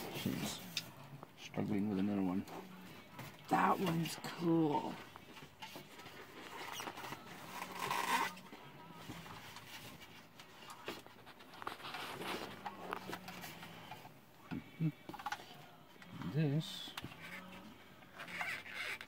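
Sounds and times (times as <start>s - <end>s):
packaging rustling and scraping: 5.1s - 8.5s, 9.1s - 13.9s.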